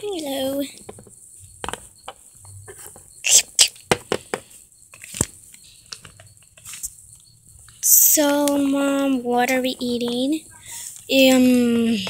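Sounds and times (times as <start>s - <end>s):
plastic toys tapping and rustling: 0.6s - 3.1s, 3.7s - 6.9s.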